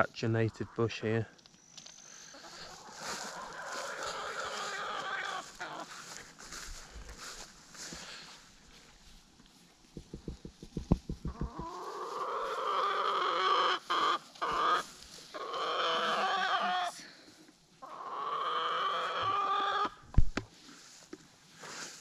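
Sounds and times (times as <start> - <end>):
rooster crowing: 15.5 - 17.0.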